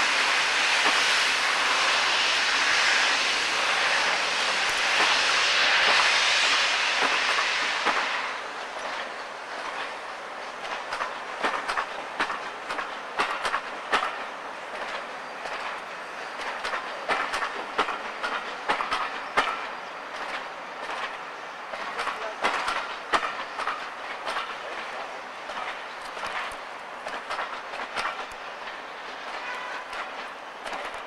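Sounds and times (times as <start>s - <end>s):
moving train noise: 0.0s - 31.0s
train wheels clicking over rail joints: 0.1s - 31.0s.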